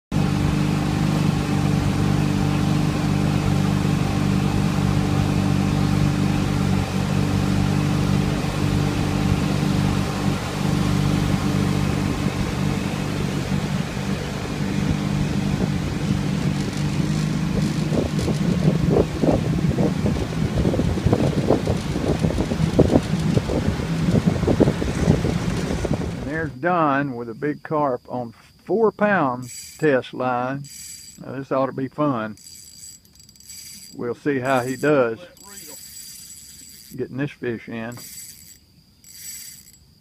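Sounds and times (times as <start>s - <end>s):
boat motor droning: 0.1s - 27.0s, 28.7s - 40.0s
wind buffeting microphone: 11.8s - 26.5s.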